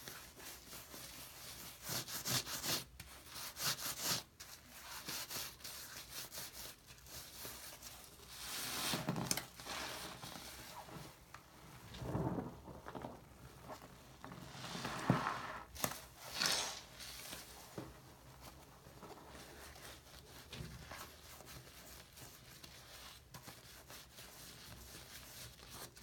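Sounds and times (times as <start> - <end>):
sponge squishing wet lather: 9.9 - 17.6, 18.3 - 26.0.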